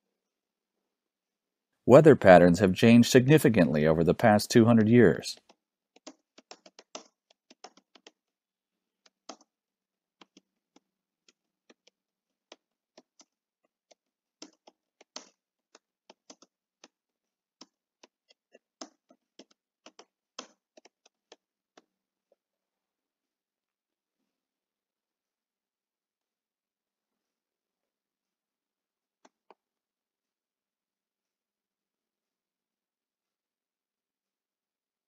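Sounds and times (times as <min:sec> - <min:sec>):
keyboard typing clicks: 0:06.0 - 0:08.2.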